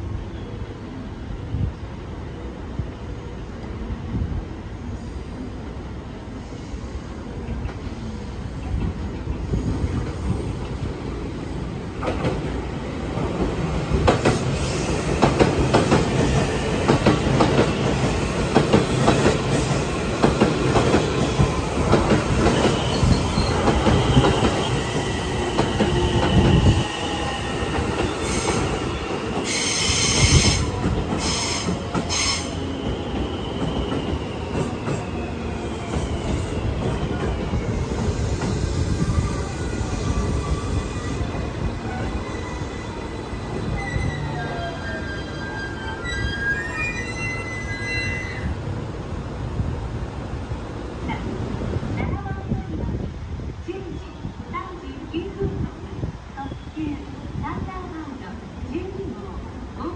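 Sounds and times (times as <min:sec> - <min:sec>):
train rumbling: 0:00.0 - 0:59.9
brake squeal: 0:42.0 - 0:48.5.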